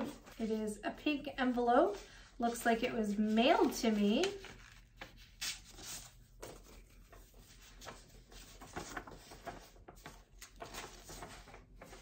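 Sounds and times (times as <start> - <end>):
paper rustling and crinkling: 2.7 - 12.0.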